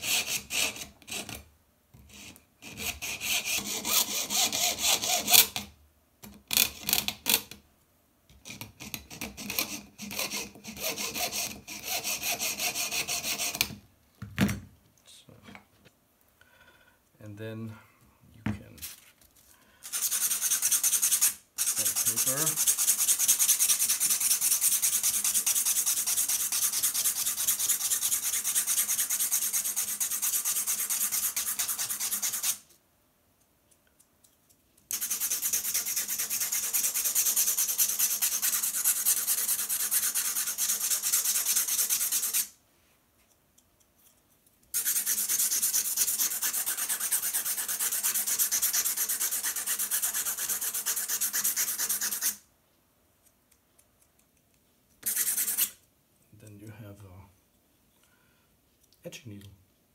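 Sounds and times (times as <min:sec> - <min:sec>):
nail rubbing on abrasive block: 0:19.9 - 0:32.7, 0:34.9 - 0:42.6, 0:44.7 - 0:52.4, 0:55.0 - 0:55.8.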